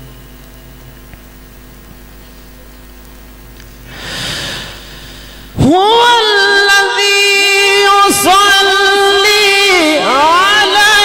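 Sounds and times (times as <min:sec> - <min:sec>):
soft rush of noise: 0:03.8 - 0:05.8.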